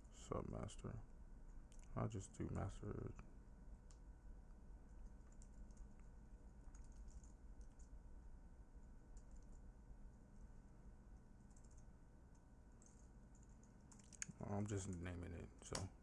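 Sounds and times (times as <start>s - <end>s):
steady low hum: 0.0s - 16.0s
soft keyboard typing: 4.8s - 8.0s, 8.8s - 10.5s, 11.1s - 16.0s.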